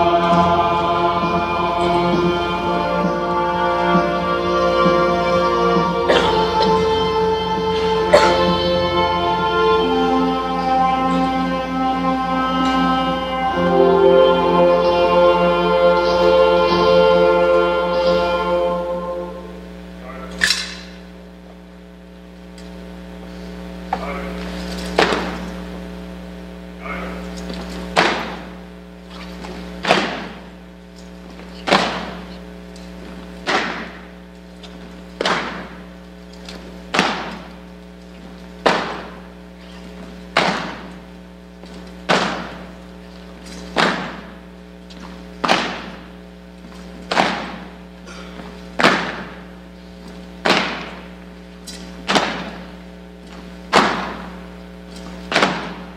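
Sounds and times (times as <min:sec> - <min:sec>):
low electrical hum: 0:00.0 - 0:55.9
heavy echoing footfalls: 0:23.9 - 0:25.8, 0:27.2 - 0:55.9.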